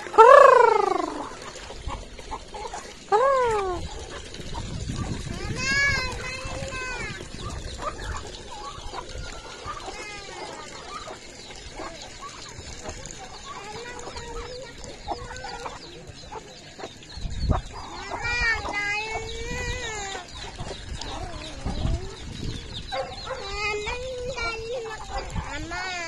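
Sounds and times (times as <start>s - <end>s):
chickens clucking: 0.0s - 26.0s.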